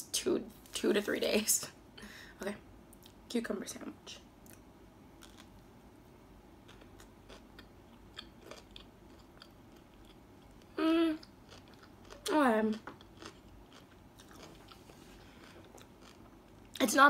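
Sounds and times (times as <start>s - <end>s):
chewing and crunching: 5.2s - 5.5s, 6.6s - 16.8s
person humming: 10.8s - 11.2s.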